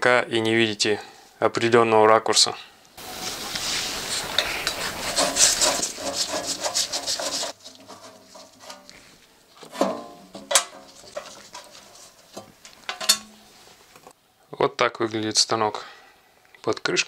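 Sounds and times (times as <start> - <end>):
metallic knocks ringing: 12.9 - 13.4.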